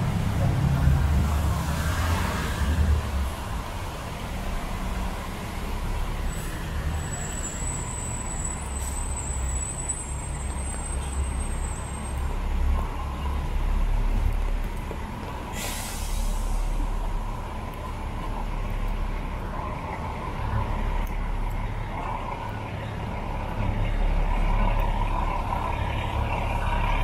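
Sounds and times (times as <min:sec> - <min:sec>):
traffic on wet pavement: 0:00.0 - 0:27.0
bus air brakes hissing: 0:06.2 - 0:12.0, 0:15.4 - 0:17.0.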